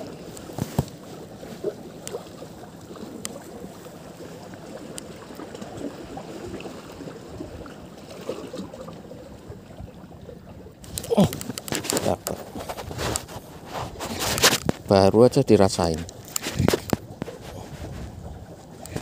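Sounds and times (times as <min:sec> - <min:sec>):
water lapping against breakwater: 0:00.0 - 0:19.0
faint clicks: 0:10.9 - 0:12.4
wind on microphone: 0:16.4 - 0:19.0.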